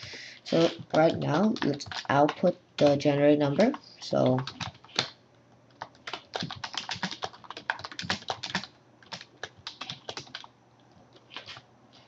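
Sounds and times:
typing on a keyboard: 0:00.9 - 0:03.0, 0:04.2 - 0:05.1, 0:05.7 - 0:10.5.

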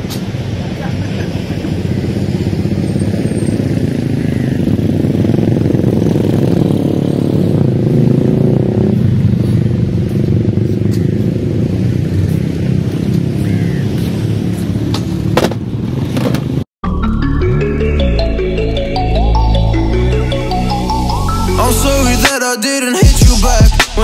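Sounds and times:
vehicle passing by: 0:00.0 - 0:16.6
motor vehicle engines running: 0:00.0 - 0:16.7.

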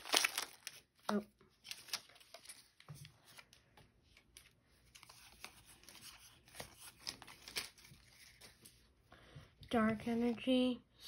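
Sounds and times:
trading cards rustling and clicking: 0:00.0 - 0:08.8.

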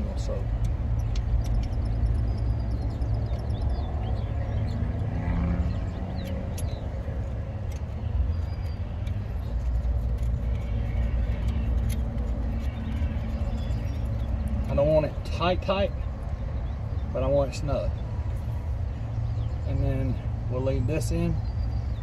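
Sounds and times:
road traffic rumble: 0:00.0 - 0:22.0
light metallic clicks: 0:00.5 - 0:03.8, 0:06.2 - 0:06.9.

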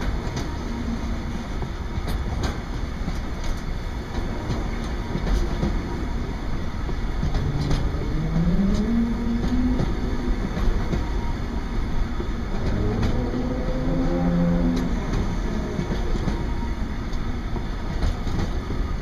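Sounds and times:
freight train rolling past: 0:00.0 - 0:19.0
wheels clicking over rails: 0:06.8 - 0:11.3, 0:12.2 - 0:19.0.

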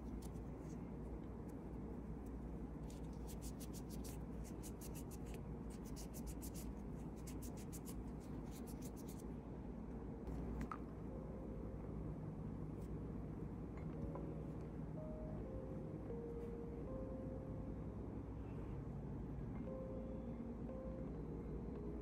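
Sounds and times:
steady low hum: 0:00.0 - 0:22.0
nail tool scratching fingernail: 0:03.2 - 0:09.2.

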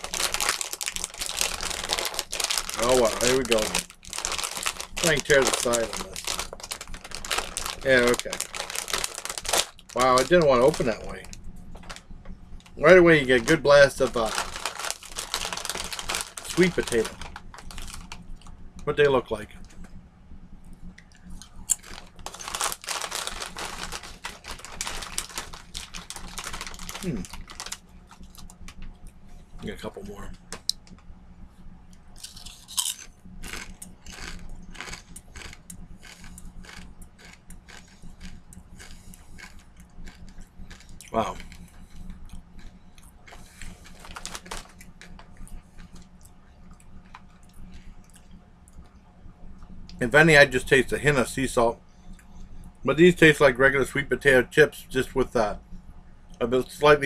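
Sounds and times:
crunching chips being chewed: 0:00.0 - 0:12.0, 0:12.7 - 0:18.5, 0:21.0 - 0:29.7, 0:32.2 - 0:48.9.

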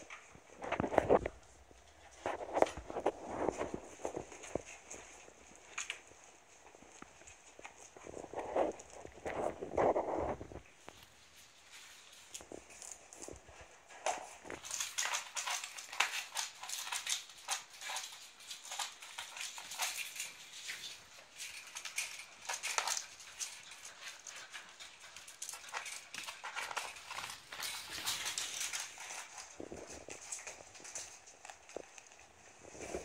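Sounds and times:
puppy claws clicking on wood: 0:12.3 - 0:32.2.

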